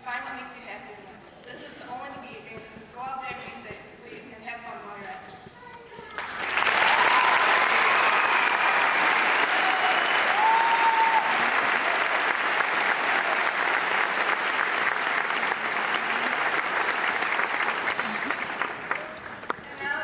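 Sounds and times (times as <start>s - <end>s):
large audience applauding: 6.1s - 20.0s.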